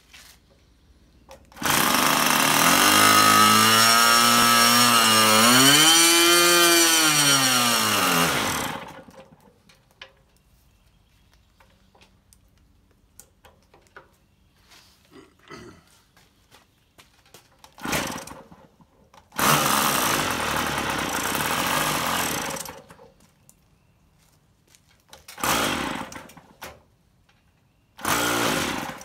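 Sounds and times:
electric starter: 0:01.4 - 0:09.4, 0:17.6 - 0:18.6, 0:19.2 - 0:23.0, 0:25.2 - 0:26.6, 0:28.0 - 0:29.0.

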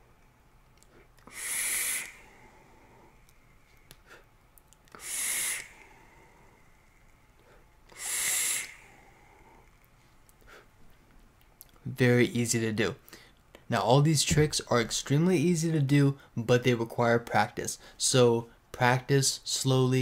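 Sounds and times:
air hissing through vape: 0:01.2 - 0:03.2, 0:04.9 - 0:09.8.

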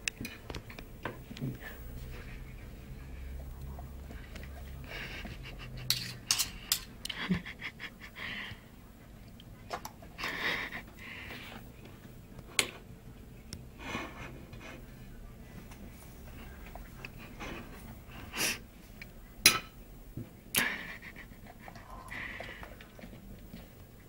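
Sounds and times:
cutlery clicking against plate: 0:05.9 - 0:06.9
heavy breathy panting: 0:07.2 - 0:08.7, 0:10.2 - 0:11.7, 0:20.6 - 0:23.0.

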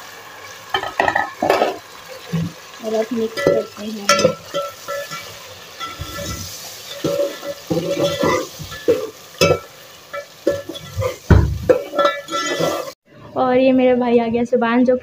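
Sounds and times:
food frying in oil: 0:00.0 - 0:13.0
spoon clinking on pot: 0:03.3 - 0:06.4, 0:07.0 - 0:12.8
spoon scraping metal pot: 0:03.3 - 0:13.0.

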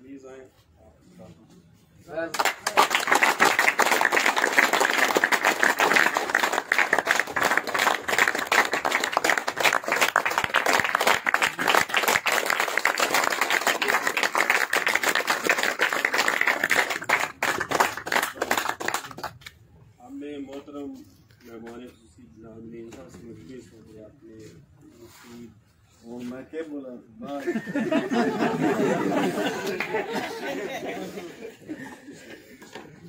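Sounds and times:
crowd clapping: 0:02.3 - 0:19.6, 0:28.9 - 0:30.3.

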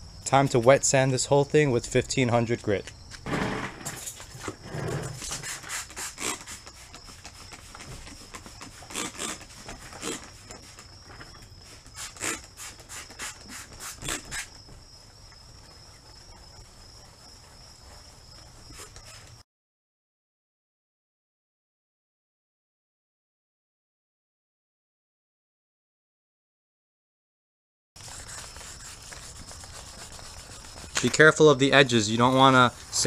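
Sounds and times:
sandpaper scrubbing strokes: 0:05.1 - 0:10.9, 0:11.6 - 0:14.6, 0:15.7 - 0:19.4, 0:28.0 - 0:33.0.

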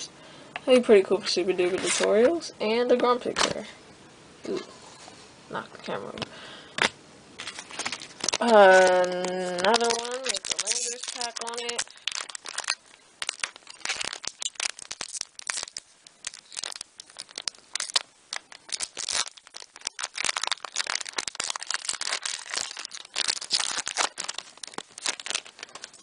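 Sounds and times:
card pack wrapper crinkling: 0:06.8 - 0:26.0.

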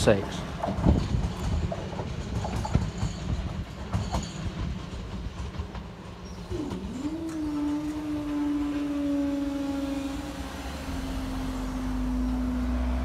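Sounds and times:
train wheels clicking over rails: 0:00.0 - 0:12.4
train rumble: 0:00.0 - 0:13.0
mechanical hum of barriers: 0:06.2 - 0:13.0.

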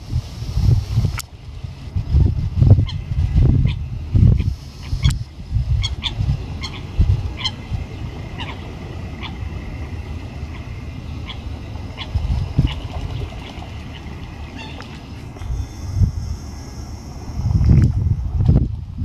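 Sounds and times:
low gusty rumble: 0:00.0 - 0:19.0
birds giving sharp calls: 0:04.4 - 0:09.7, 0:10.4 - 0:17.5.

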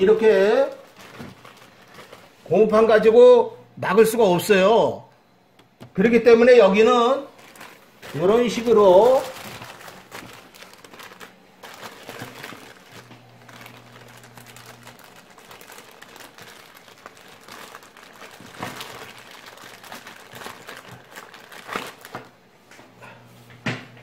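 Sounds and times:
plastic bags rustling: 0:00.0 - 0:02.9, 0:06.6 - 0:22.7.

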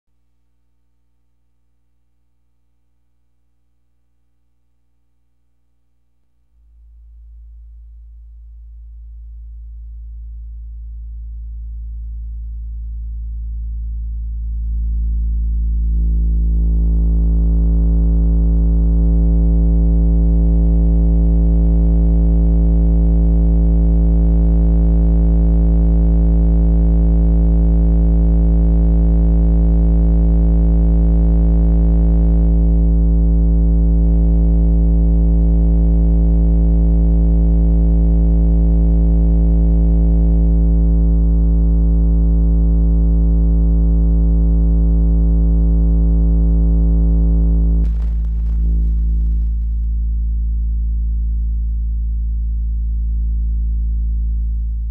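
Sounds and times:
buzzy distorted low test tone: 0:00.1 - 0:54.9.

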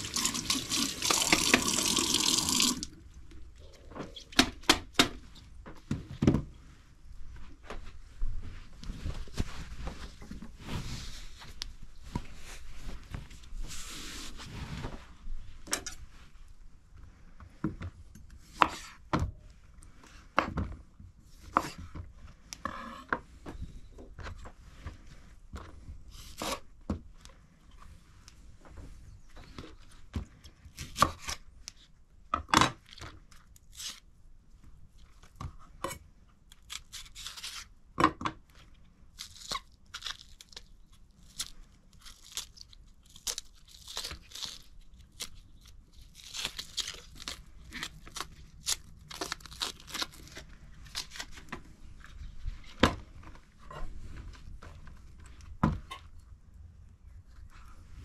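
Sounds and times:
tearing and rustling: 0:36.5 - 0:37.7, 0:39.1 - 0:51.5.

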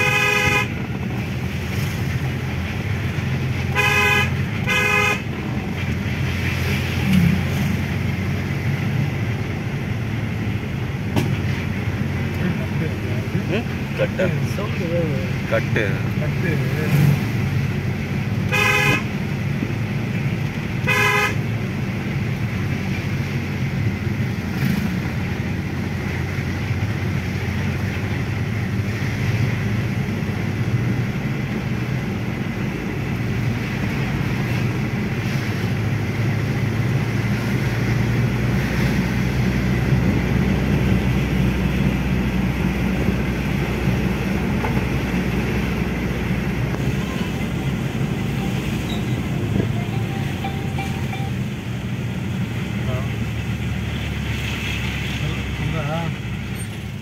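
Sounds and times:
car horn toot: 0:00.0 - 0:00.8, 0:03.7 - 0:05.3, 0:18.5 - 0:19.1, 0:20.8 - 0:21.4, 0:46.8 - 0:51.5
diesel engine rumble: 0:00.0 - 0:57.0.

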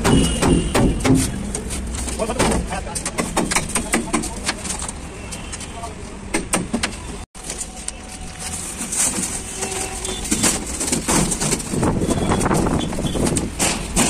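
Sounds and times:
steel sheet scraping and knocking: 0:08.6 - 0:14.0.

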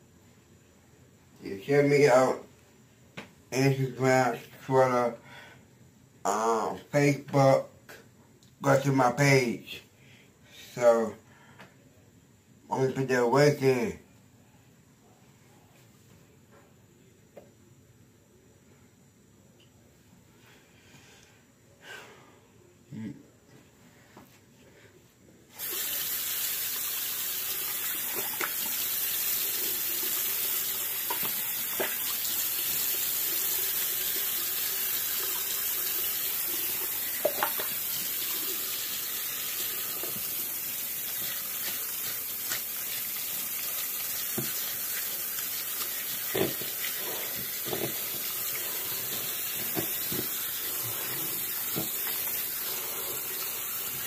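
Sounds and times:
water running from tap: 0:25.6 - 0:54.0.

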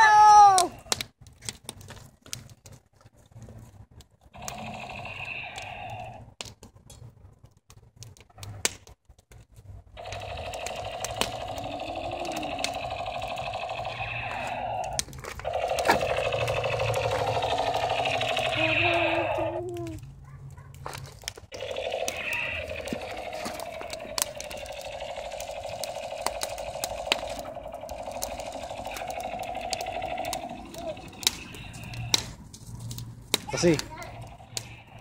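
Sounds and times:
wood fire crackling: 0:00.0 - 0:35.0
toy gun buzzing sound effect: 0:04.4 - 0:06.2, 0:10.0 - 0:19.8, 0:21.5 - 0:32.2.

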